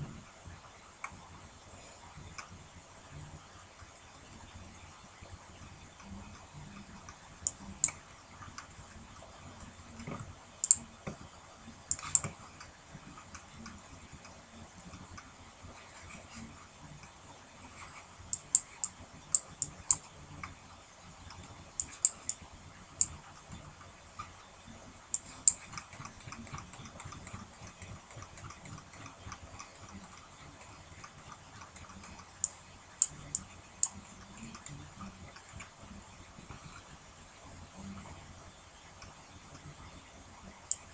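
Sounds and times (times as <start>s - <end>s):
faint irregular ticking: 1.0s - 40.9s
sharp clicks: 6.3s - 8.0s, 10.0s - 10.8s, 11.9s - 12.4s, 18.3s - 20.1s, 21.2s - 22.4s, 25.1s - 30.3s, 40.6s - 40.9s.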